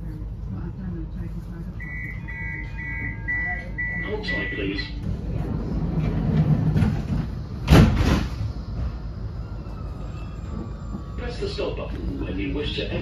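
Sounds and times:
tram rumbling: 0.0 - 13.0
loud clunk: 6.3 - 8.5.

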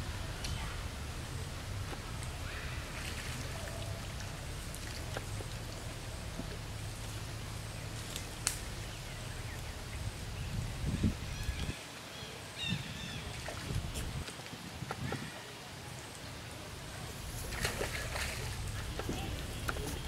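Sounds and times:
water splashing and lapping: 0.7 - 8.4, 12.8 - 20.0.

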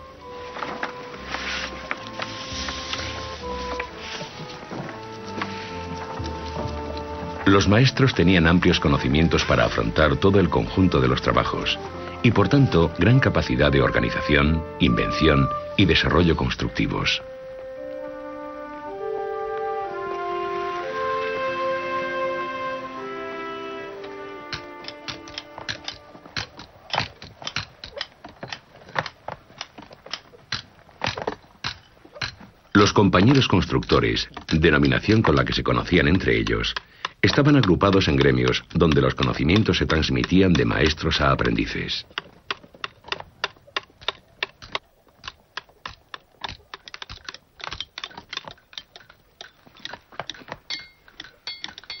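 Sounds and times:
hammers and chisels striking stone: 24.5 - 29.2, 30.1 - 32.4, 33.2 - 41.6, 42.2 - 52.0
hammer striking chisel on stone: 45.8 - 52.0.

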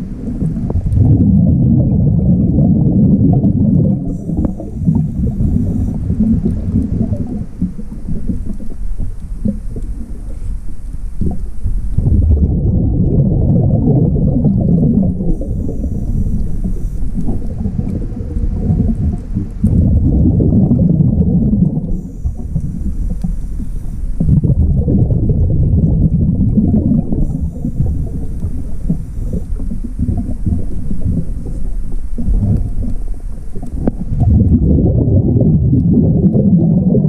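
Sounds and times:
exhaled bubbles rumbling underwater: 0.0 - 37.0
regulator hiss on inhale: 4.1 - 12.0, 15.2 - 19.8, 21.9 - 24.4, 27.1 - 34.1.

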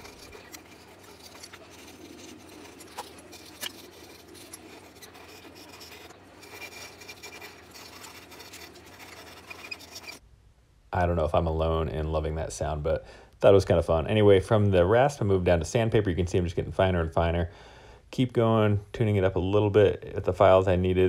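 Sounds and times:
hand rasp scraping wood: 0.0 - 10.2.

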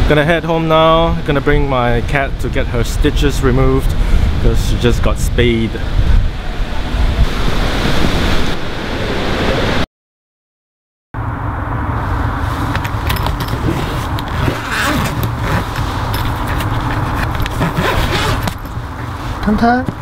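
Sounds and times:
street traffic rumble: 11.2 - 20.0
fabric cat carrier rustling: 12.4 - 20.0
zipper handled: 12.6 - 19.1.

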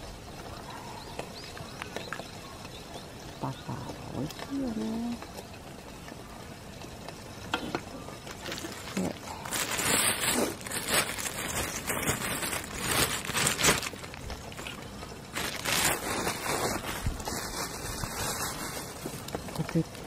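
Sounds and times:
plastic bag crinkling: 8.2 - 19.9.

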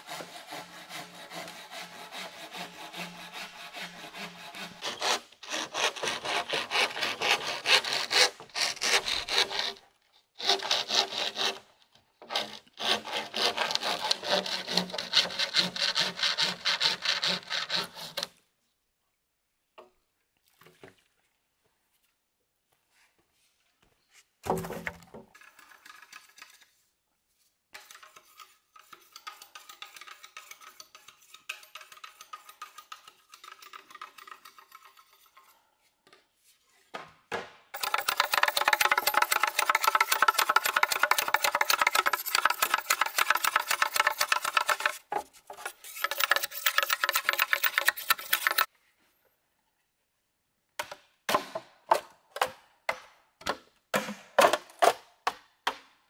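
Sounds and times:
knife scraping bamboo: 0.0 - 9.8, 10.4 - 18.4, 27.8 - 35.9, 37.8 - 48.7
hatchet chopping bamboo: 37.3 - 45.0.

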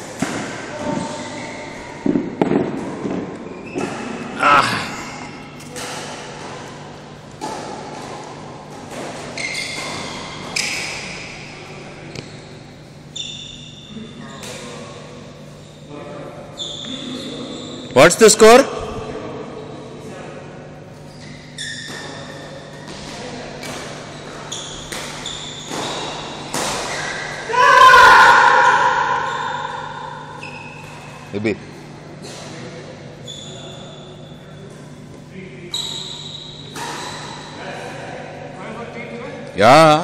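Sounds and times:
shoes squeaking on court: 0.7 - 4.3, 6.8 - 11.5, 12.1 - 14.8, 16.6 - 18.0, 21.0 - 27.4, 29.2 - 31.3, 33.2 - 37.6
rackets hitting shuttlecock: 21.9 - 27.5, 36.7 - 37.3.

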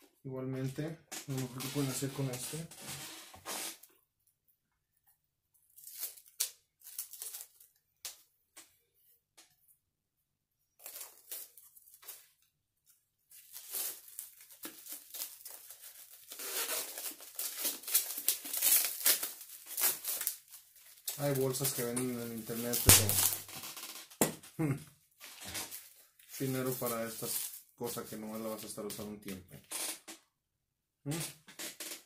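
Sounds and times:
plastic bags crinkling: 5.8 - 7.8, 10.8 - 12.4, 13.3 - 23.6, 25.2 - 28.6.

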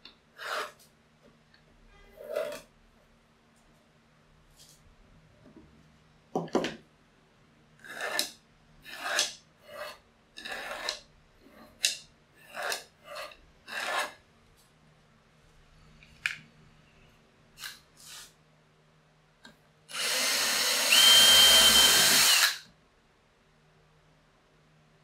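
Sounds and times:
pencil scratching on plywood: 0.4 - 0.8, 7.8 - 11.8, 12.4 - 14.2.

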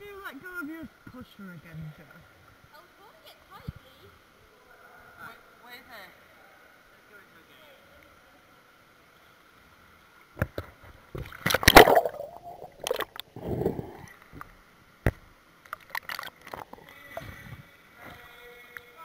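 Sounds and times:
pool water splashing: 11.2 - 14.2, 15.5 - 16.9.

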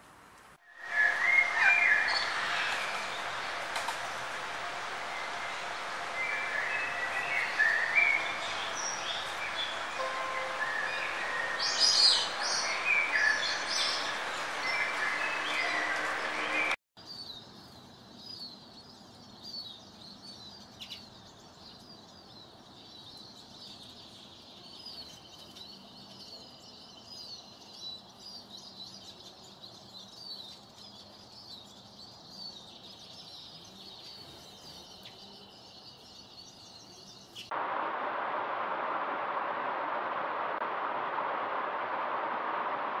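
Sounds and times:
thin steady high note: 0.7 - 16.8.

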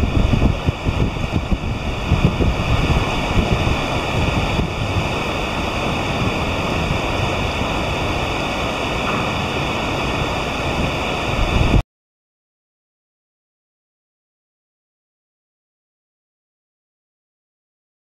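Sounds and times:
river water rushing: 0.0 - 11.8
wind on microphone: 0.0 - 11.8.

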